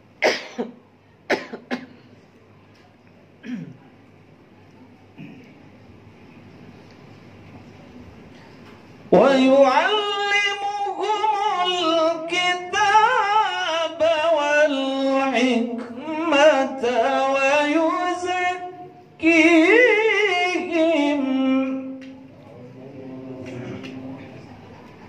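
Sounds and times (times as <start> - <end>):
man reciting melodically: 9.1 - 24.5.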